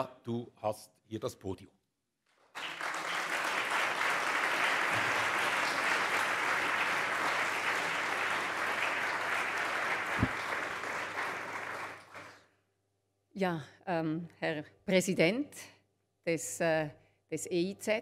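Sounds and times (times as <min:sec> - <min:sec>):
audience applauding: 0:02.4 - 0:12.5.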